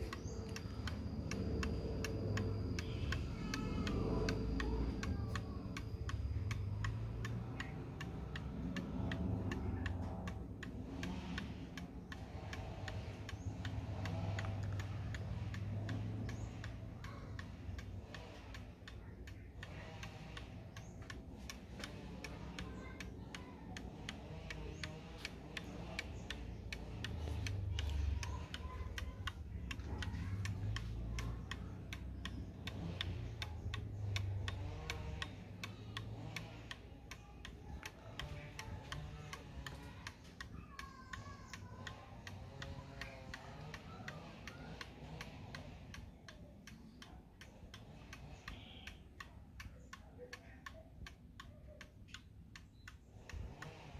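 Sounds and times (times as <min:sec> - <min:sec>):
wall clock ticking: 0:00.0 - 0:53.9.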